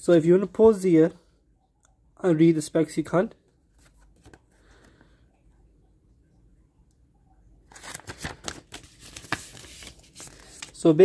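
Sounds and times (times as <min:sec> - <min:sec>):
paper pages rustling: 0:03.6 - 0:04.9, 0:07.7 - 0:11.0.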